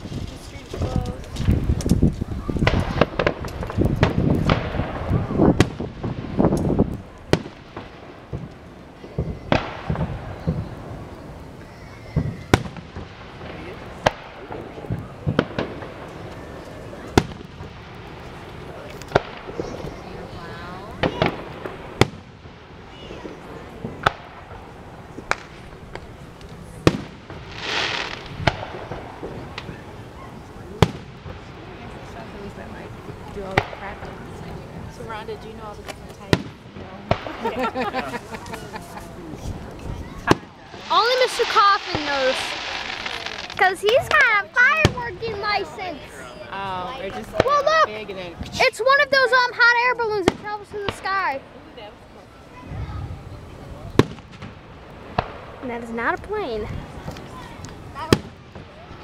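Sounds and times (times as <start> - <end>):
fireworks bursting with bangs: 0.0 - 59.0
firework shells bursting: 21.0 - 30.0, 39.6 - 45.2.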